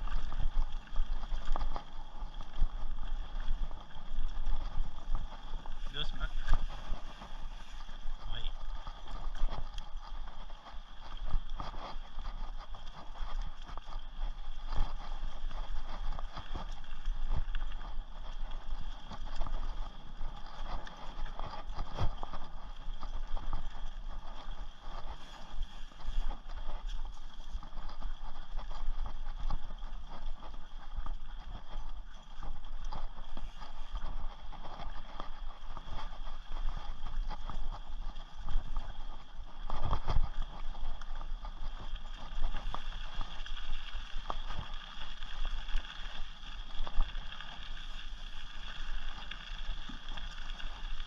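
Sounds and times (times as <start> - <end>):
steady low rumble: 0.0 - 45.2
bike tyres on dirt: 0.0 - 51.0.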